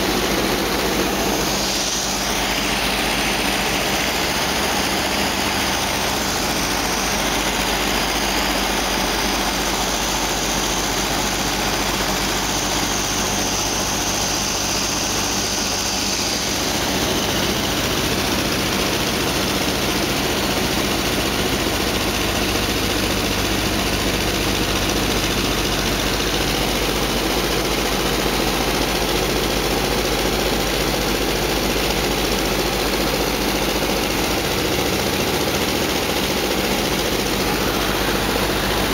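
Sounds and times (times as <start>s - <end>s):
propeller engines droning: 0.0s - 20.4s, 34.3s - 38.9s.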